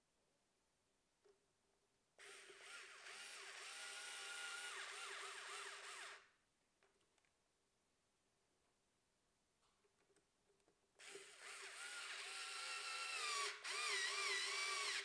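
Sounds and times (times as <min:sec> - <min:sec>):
cordless drill motor whine: 0:02.2 - 0:06.2, 0:11.0 - 0:15.0.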